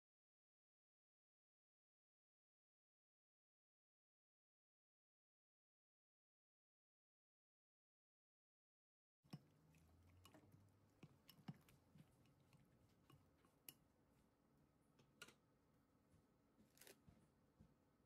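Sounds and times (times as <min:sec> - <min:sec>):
chopsticks tapping glass bowl: 0:09.3 - 0:13.8.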